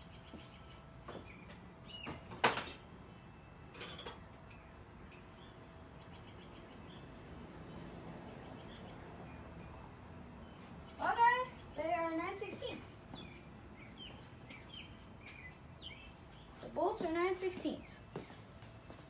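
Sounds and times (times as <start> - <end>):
faint birds chirping: 0.0 - 19.0
wrenches clanking: 3.7 - 5.3.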